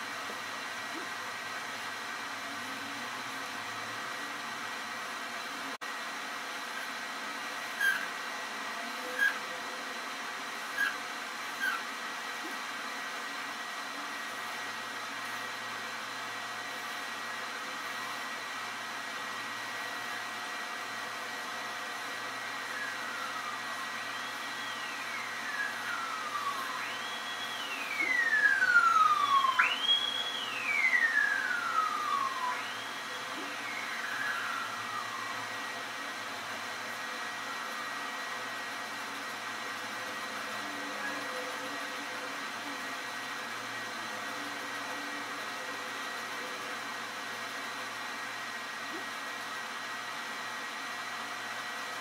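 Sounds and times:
siren sweeping: 22.6s - 38.4s.

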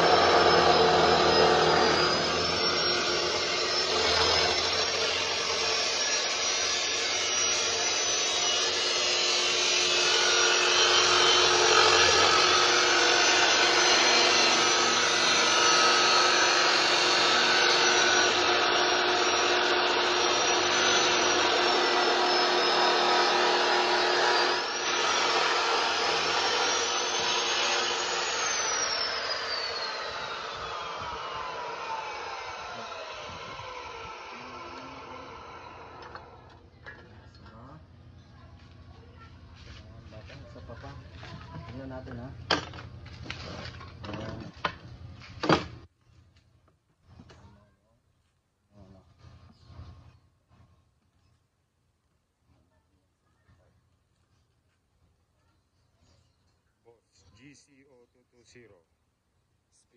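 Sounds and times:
cut-off saw grinding steel: 0.0s - 37.7s.

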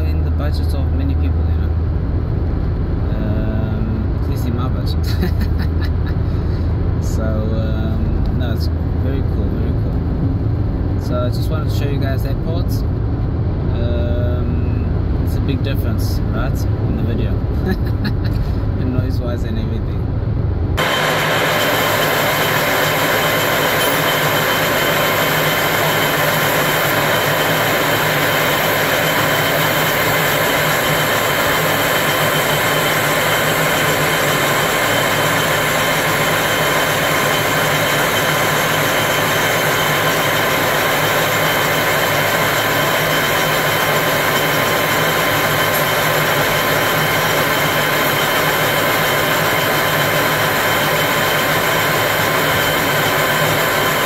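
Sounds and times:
lathe running: 20.8s - 54.0s.

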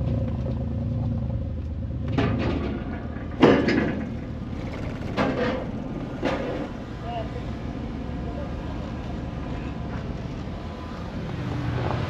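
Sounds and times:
car engine low rumble: 0.0s - 12.0s
clunks on steel ramp: 2.0s - 7.0s.

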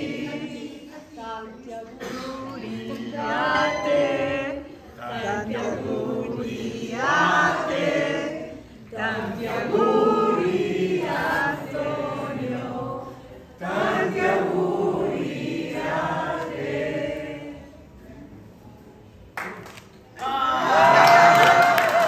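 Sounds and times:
group of people singing: 0.0s - 18.4s.

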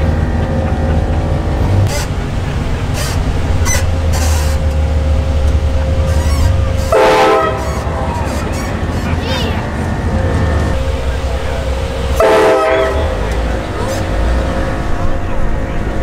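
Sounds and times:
truck engine hum: 0.0s - 16.0s
train horn blowing: 6.0s - 9.1s, 10.8s - 14.6s.

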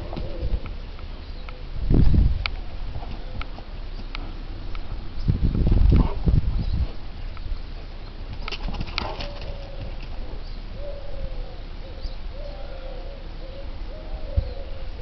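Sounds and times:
pigeon cooing: 0.0s - 1.8s, 8.8s - 15.0s.

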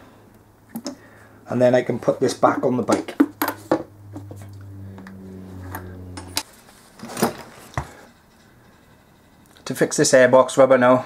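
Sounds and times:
steady low hum: 0.2s - 7.6s.

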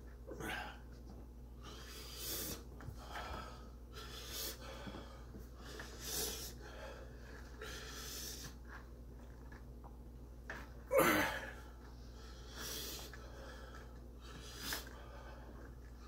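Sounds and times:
man breathing hard: 0.3s - 1.0s, 1.6s - 8.6s, 10.9s - 15.8s.

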